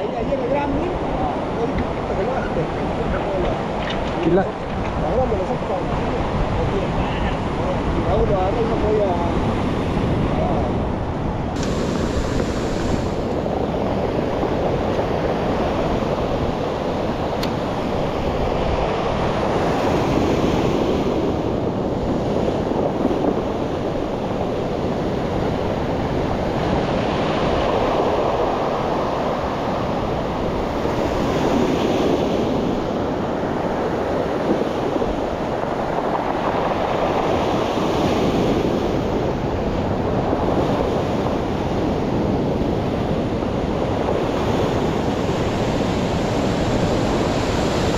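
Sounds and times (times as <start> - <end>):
surf breaking on pebble beach: 11.6 - 23.8.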